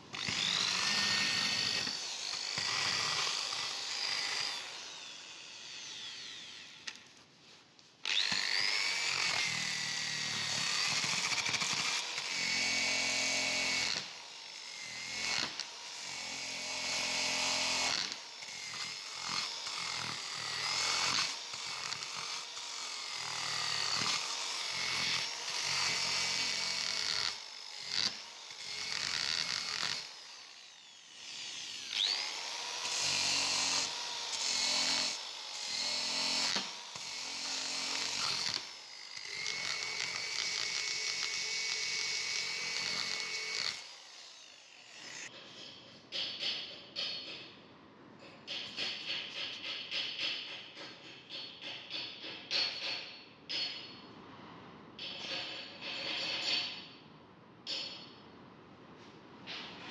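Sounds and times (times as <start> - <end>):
drill grinding metal: 0.1 - 6.9, 8.0 - 45.4.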